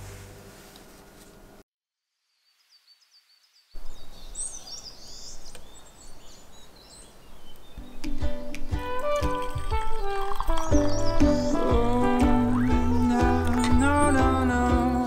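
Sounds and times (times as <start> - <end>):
small birds chirping: 2.4 - 15.0
music: 7.8 - 15.0.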